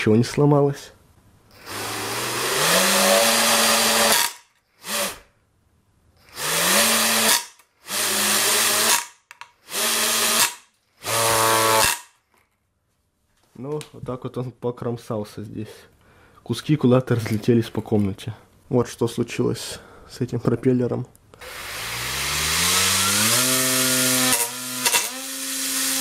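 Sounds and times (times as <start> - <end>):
electric motor whining: 21.4 - 26.0.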